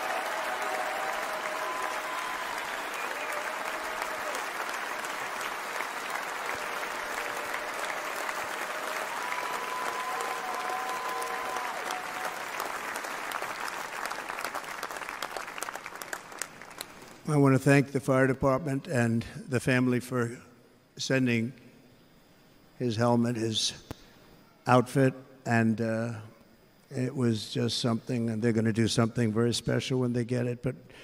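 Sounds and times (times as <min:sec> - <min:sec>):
crowd applauding: 0:00.0 - 0:17.2.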